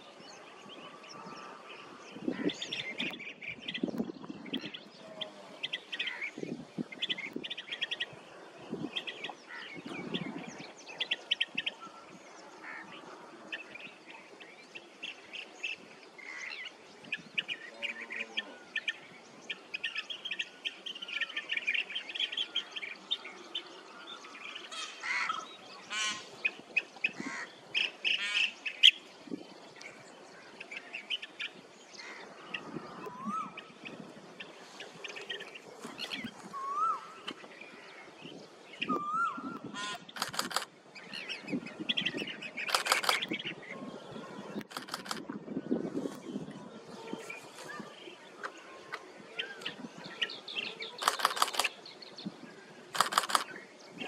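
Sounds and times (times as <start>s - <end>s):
birds rolling trilled calls: 38.9s - 43.6s, 44.6s - 45.2s, 51.0s - 51.8s, 53.0s - 53.6s.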